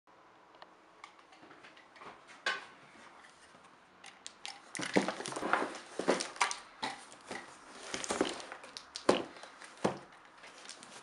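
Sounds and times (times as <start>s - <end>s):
plastic wrap crinkling: 4.7s - 11.0s.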